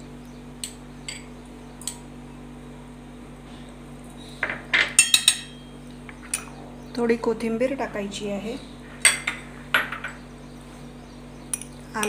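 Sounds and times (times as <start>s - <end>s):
metal spoon clinking against bowl: 5.0s - 5.7s.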